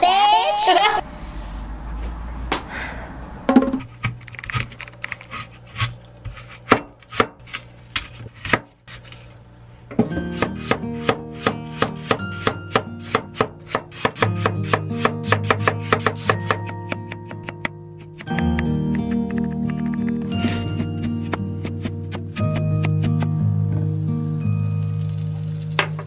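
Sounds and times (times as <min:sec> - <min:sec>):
knife chopping on wooden board: 0:05.8 - 0:08.7, 0:10.0 - 0:23.3
plucked-string background music: 0:10.0 - 0:26.0.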